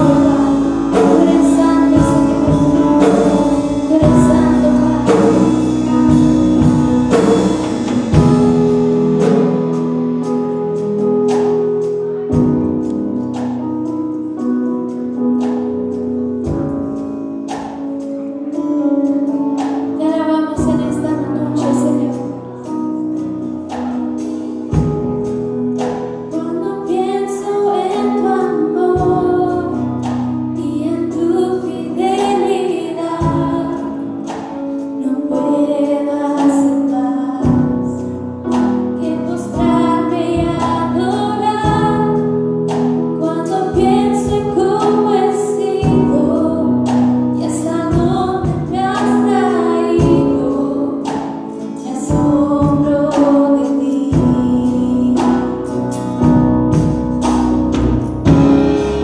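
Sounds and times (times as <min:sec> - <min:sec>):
woman singing into a microphone: 0:00.0 - 0:07.5, 0:19.9 - 0:22.6, 0:26.3 - 0:56.6
guitar: 0:00.0 - 0:59.0
sustained keyboard chords: 0:00.0 - 0:59.0
steady beat: 0:56.2 - 0:59.0.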